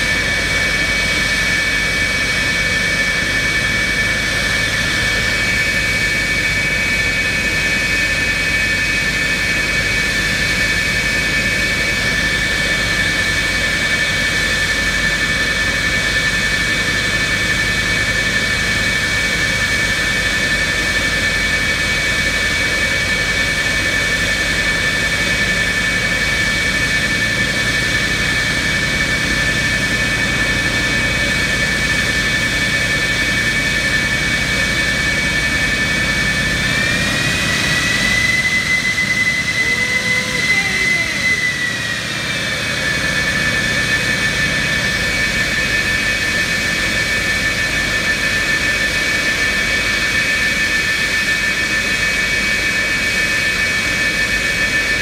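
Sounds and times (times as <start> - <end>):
jet engines idling: 0.0 - 55.0.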